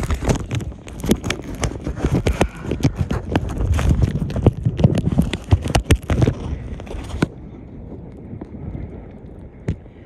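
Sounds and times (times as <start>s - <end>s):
camera handling noise in kayak: 0.0s - 7.4s.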